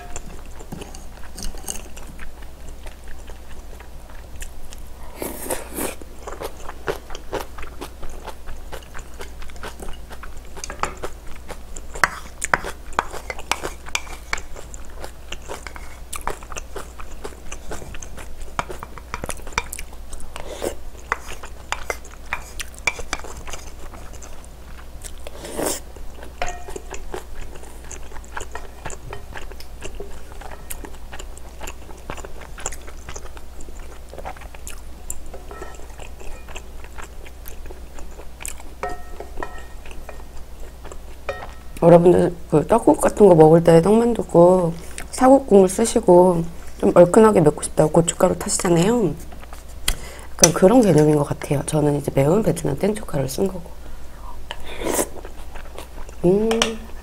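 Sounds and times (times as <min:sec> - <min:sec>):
person chewing and biting: 0:00.0 - 0:41.8, 0:55.0 - 0:56.2.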